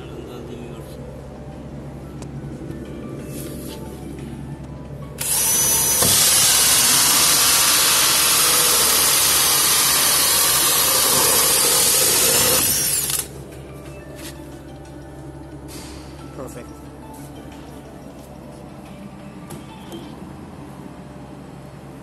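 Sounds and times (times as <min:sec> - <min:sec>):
drill cutting with hole saw: 0:05.2 - 0:13.3.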